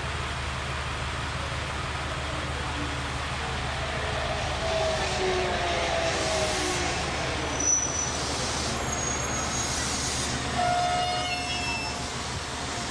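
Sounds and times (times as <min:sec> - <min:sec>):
diesel railcar idling hum: 0:00.0 - 0:12.9
high-pitched squeal: 0:04.2 - 0:12.5.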